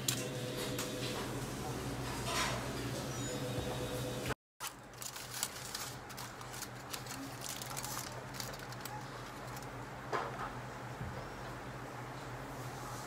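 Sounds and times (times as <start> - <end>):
aluminium foil crinkling: 4.6 - 9.8.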